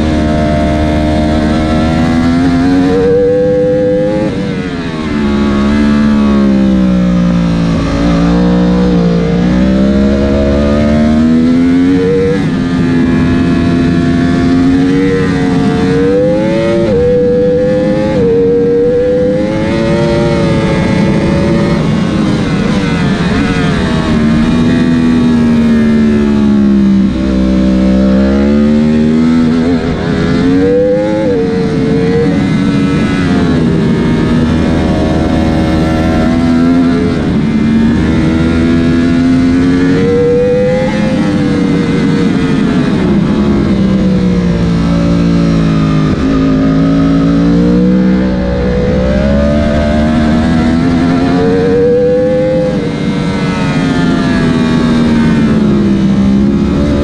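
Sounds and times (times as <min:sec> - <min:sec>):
motorcycle engine revving: 0:00.0 - 0:57.0
wind rush: 0:28.2 - 0:57.0.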